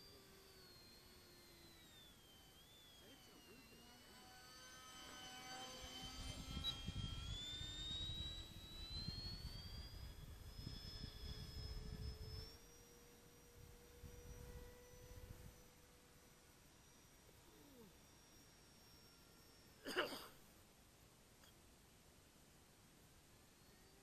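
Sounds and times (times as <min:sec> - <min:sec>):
electric ducted fan whine: 0:00.0 - 0:24.0.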